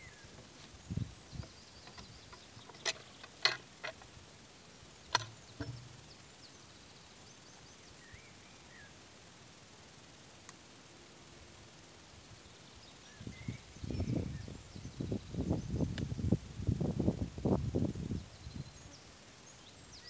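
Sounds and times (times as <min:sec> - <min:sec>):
birds calling faintly: 0:00.0 - 0:09.1
axe thuds: 0:05.2 - 0:06.1.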